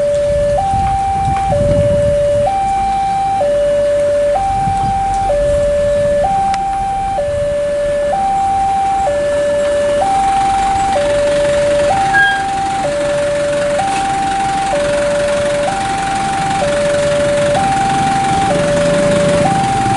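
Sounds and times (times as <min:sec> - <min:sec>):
two-tone level crossing alarm: 0:00.0 - 0:19.9
low rumble: 0:03.6 - 0:13.8.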